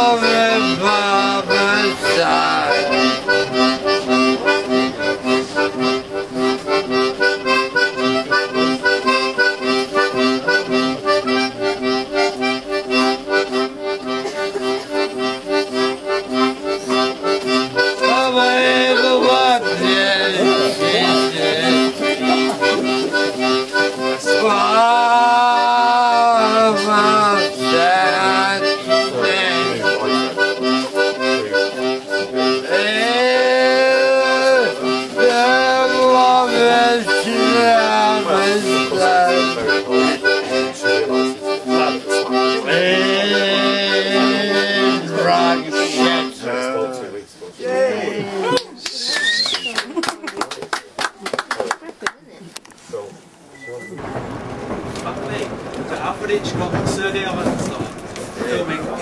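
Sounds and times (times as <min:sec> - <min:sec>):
person singing: 0:24.0 - 0:30.2, 0:32.5 - 0:46.3.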